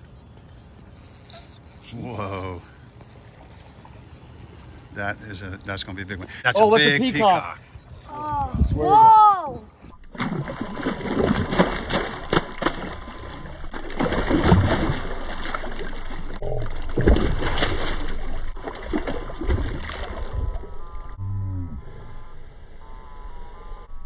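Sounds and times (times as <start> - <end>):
fish thrashing and splashing: 10.0 - 20.8.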